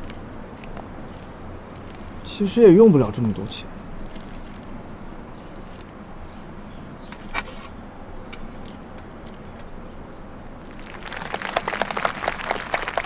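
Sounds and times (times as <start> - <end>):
outdoor background hiss: 0.0 - 13.0.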